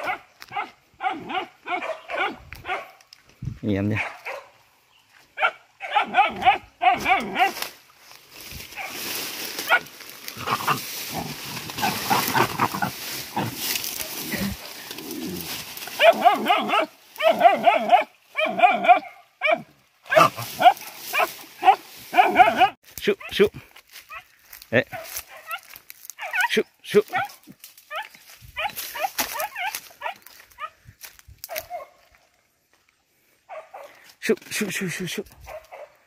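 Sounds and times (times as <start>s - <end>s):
dogs barking: 0.0s - 3.0s, 3.9s - 4.6s, 5.4s - 7.7s, 8.7s - 9.0s, 9.6s - 14.8s, 15.4s - 23.5s, 24.1s - 30.8s, 31.5s - 32.1s, 33.4s - 34.1s, 35.4s - 36.0s.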